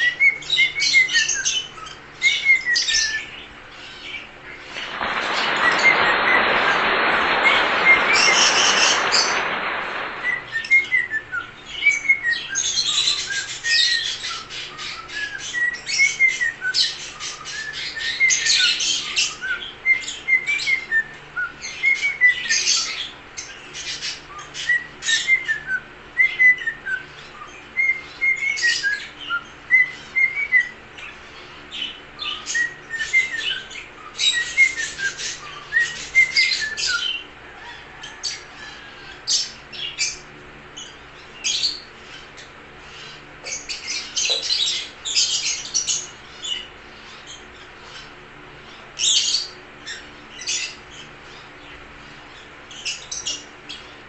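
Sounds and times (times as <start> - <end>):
cockatiel whistling: 10.2 - 12.5.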